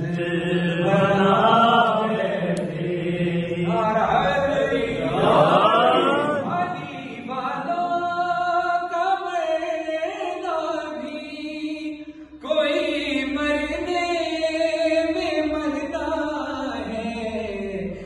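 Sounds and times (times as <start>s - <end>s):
men's voices joining chant: 0.0s - 7.4s
man chanting a lament: 0.0s - 18.0s.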